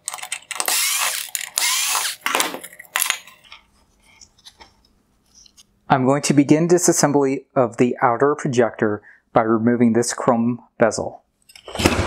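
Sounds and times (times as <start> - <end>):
electric screwdriver motor whining: 0.6 - 2.2.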